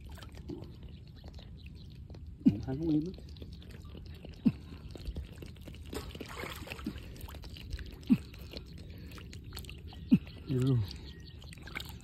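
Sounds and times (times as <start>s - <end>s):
water sloshing and trickling: 0.0s - 1.9s, 2.9s - 12.0s
water plop: 5.8s - 8.2s, 11.5s - 12.0s.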